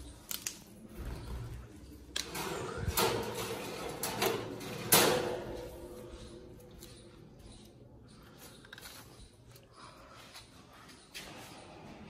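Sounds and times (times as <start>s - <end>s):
wire cage clicking and rattling: 2.1s - 7.1s.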